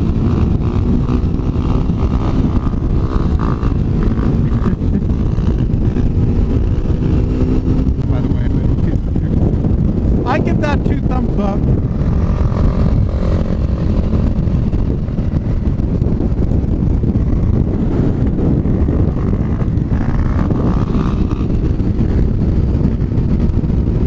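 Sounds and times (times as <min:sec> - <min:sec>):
motorcycle engine: 0:00.0 - 0:24.0
wind and road noise: 0:00.0 - 0:24.0.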